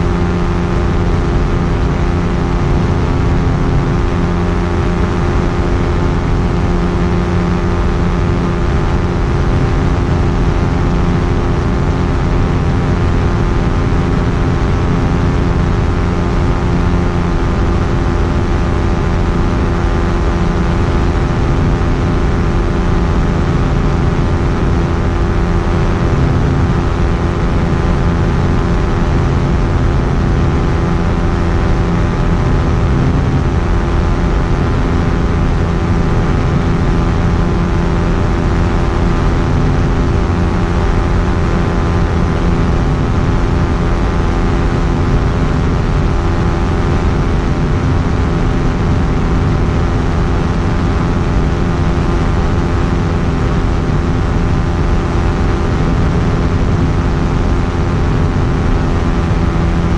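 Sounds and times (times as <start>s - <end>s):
ultralight aircraft engine droning: 0.0s - 59.9s.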